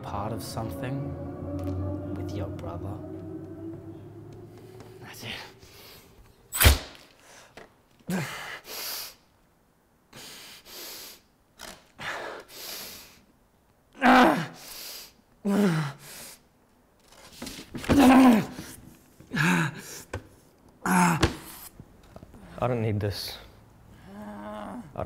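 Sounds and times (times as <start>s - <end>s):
man groaning: 20.8s - 21.3s.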